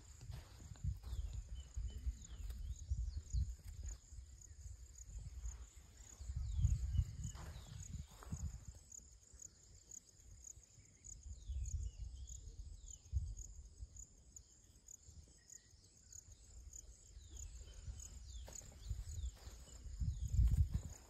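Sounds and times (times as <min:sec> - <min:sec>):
low microphone rumbles: 0:06.2 - 0:08.7.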